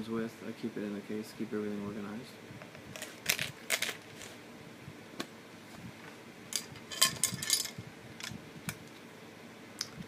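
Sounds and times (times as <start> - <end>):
small metal tools clicking and rattling: 6.5 - 7.8.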